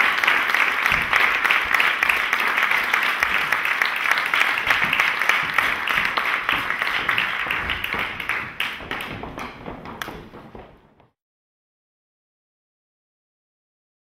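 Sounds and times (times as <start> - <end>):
audience applause: 0.0 - 10.3.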